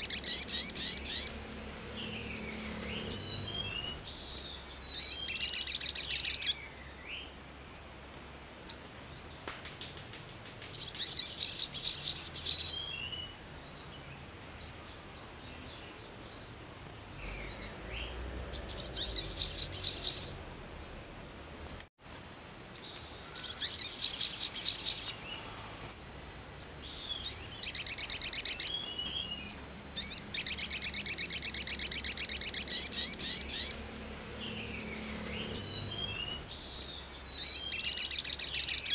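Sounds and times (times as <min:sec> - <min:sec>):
bird fast high trilling: 0:17.2 - 0:20.4.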